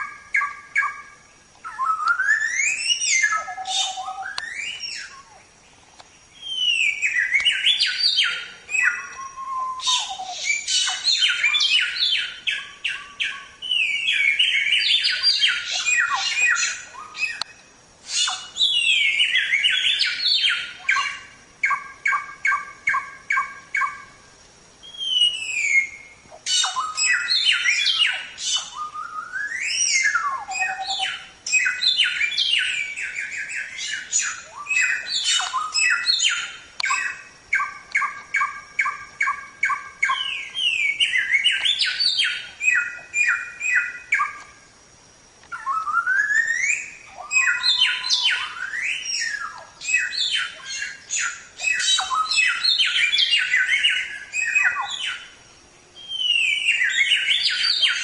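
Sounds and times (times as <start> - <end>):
songbird singing whistled notes: 0.0 - 58.0.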